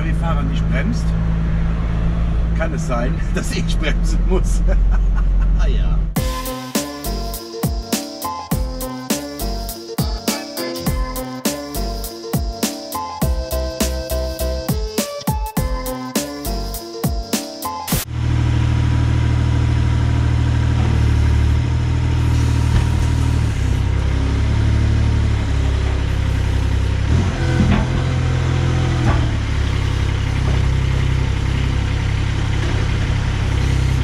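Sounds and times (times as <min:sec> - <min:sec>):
forklift engine running: 0:00.0 - 0:15.0, 0:15.6 - 0:34.0.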